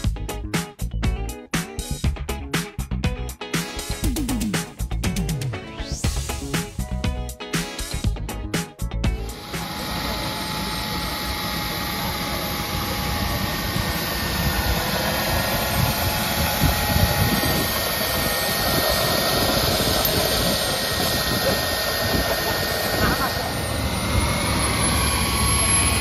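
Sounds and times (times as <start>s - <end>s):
turbine engine whining: 9.1s - 26.0s.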